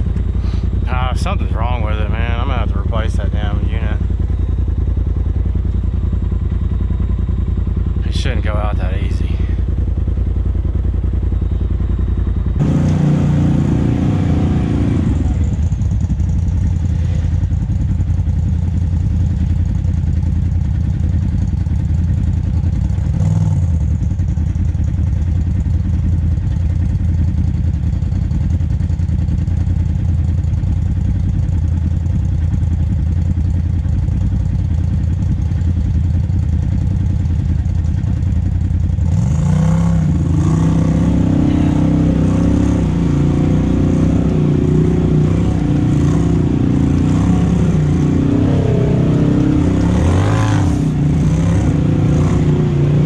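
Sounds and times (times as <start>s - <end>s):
engine revving: 0.0s - 4.0s, 12.6s - 16.0s, 22.9s - 23.9s, 39.0s - 53.0s
engine running at low revs: 0.0s - 53.0s.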